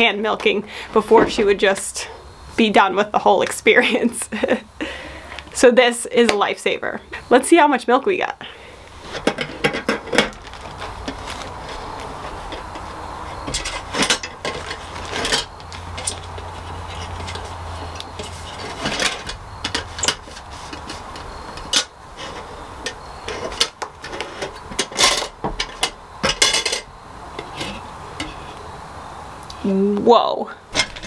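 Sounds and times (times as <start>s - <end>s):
low steady hum: 0.0s - 31.0s
metal bucket clinking and knocking: 9.2s - 10.4s, 13.4s - 17.5s, 22.8s - 28.4s.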